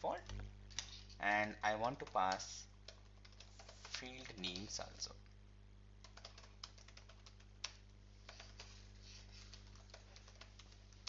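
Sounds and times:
low electrical hum: 0.0s - 11.0s
typing on computer keyboard: 1.9s - 4.9s, 6.0s - 8.7s, 9.5s - 11.0s.

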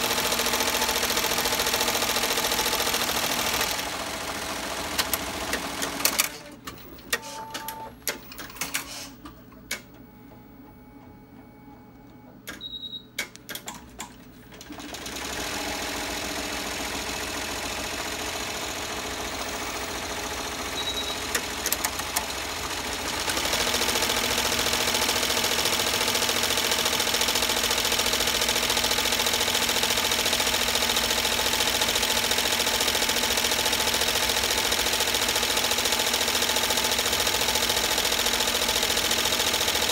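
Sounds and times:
embroidery machine stitching: 0.0s - 9.1s, 14.5s - 39.9s
short beep: 12.6s - 13.2s, 20.7s - 21.3s.

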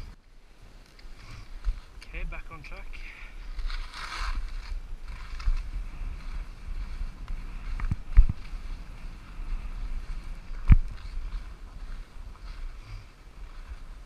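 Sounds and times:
wind buffeting microphone: 3.3s - 14.0s
skis running over snow: 3.4s - 14.0s.

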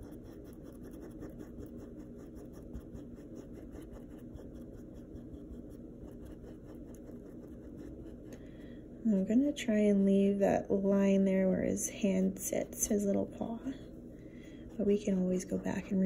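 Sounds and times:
paintbrush scratching on canvas: 0.0s - 8.4s, 11.2s - 13.8s, 14.6s - 16.0s.

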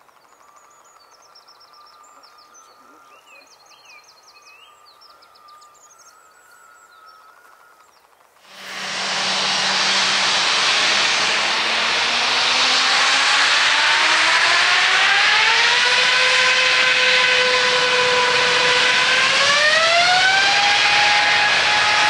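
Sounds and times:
jet engines spooling up: 8.4s - 22.0s.

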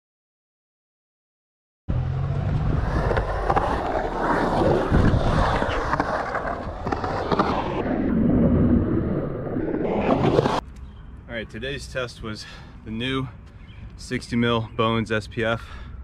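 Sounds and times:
skateboard wheels rolling on concrete: 1.9s - 10.9s.

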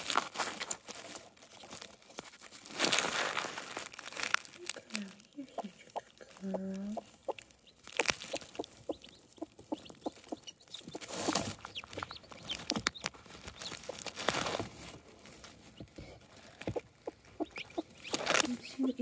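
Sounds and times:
rustling of feathers and straw: 0.0s - 19.0s
hen clucking softly: 5.5s - 13.0s, 16.7s - 19.0s.

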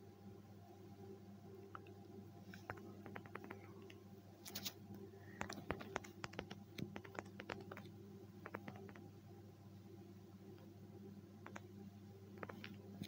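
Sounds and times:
faint steady hum: 0.0s - 13.0s
taps on touchscreen keyboard: 2.7s - 3.6s, 5.4s - 9.1s.

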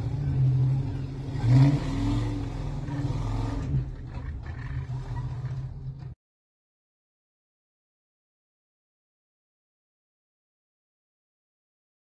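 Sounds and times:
truck engine revving: 0.0s - 6.2s.

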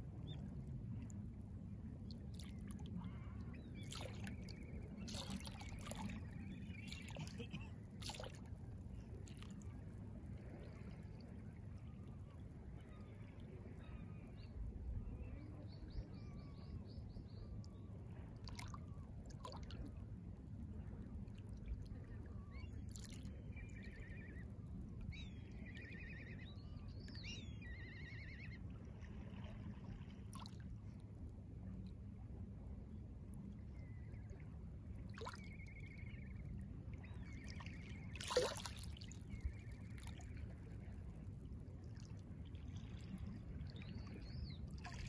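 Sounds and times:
low steady rumble: 0.0s - 45.0s
small waves lapping at shore: 2.3s - 11.4s, 28.4s - 31.0s, 37.1s - 41.2s.

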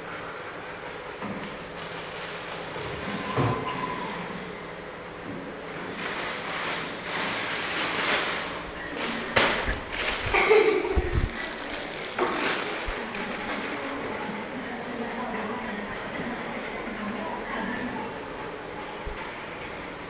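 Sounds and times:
dogs scuffling on tile floor: 1.5s - 3.2s, 5.9s - 14.0s.

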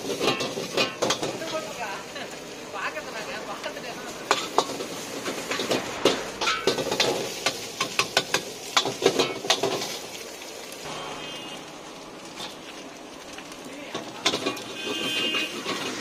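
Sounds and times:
steel ladle clanking on a wok: 4.2s - 5.8s.

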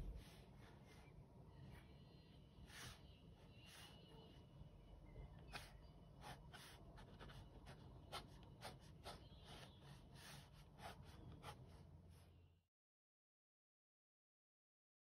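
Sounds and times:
pen nib scratching on paper: 5.4s - 11.9s.

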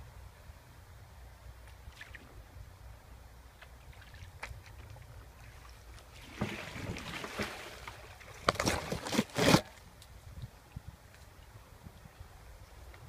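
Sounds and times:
branches brushing against canoe: 3.6s - 10.1s.

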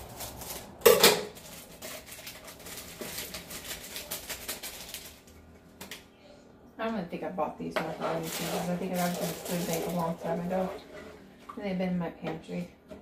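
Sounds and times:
packet clicks and rustles: 0.0s - 6.0s, 8.2s - 10.6s.

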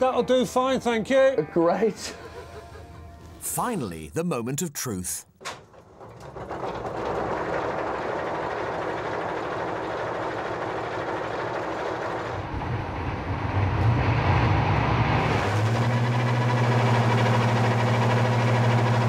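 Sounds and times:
diesel engine cranking: 5.7s - 12.4s.

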